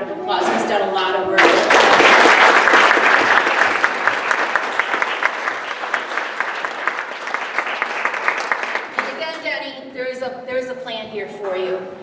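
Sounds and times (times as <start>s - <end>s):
audience clapping: 1.4s - 9.4s.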